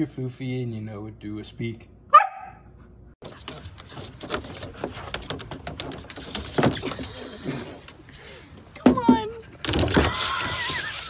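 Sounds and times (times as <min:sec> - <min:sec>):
dog claws on plastic slide: 0:03.2 - 0:08.0.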